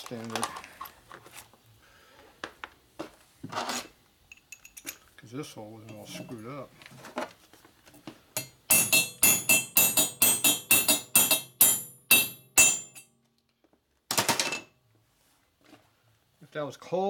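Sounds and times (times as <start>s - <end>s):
hammer striking metal: 8.4s - 13.1s.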